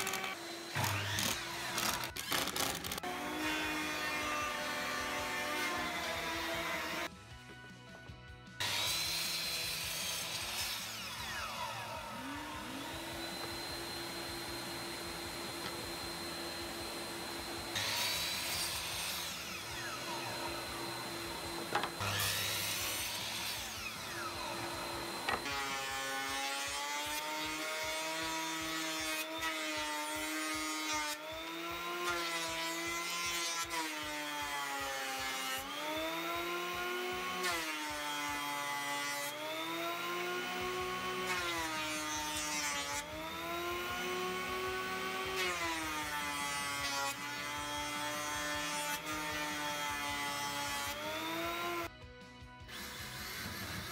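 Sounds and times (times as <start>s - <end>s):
miter saw cutting wood: 0.0s - 7.1s, 8.6s - 51.9s, 52.7s - 53.9s
jointer-planer running: 11.4s - 25.8s.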